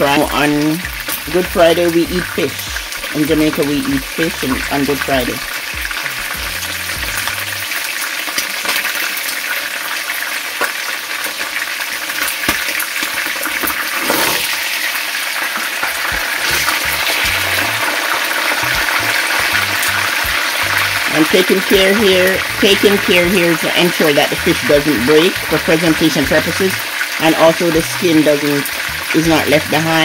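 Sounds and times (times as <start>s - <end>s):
fish sizzling in hot oil: 0.0s - 30.0s.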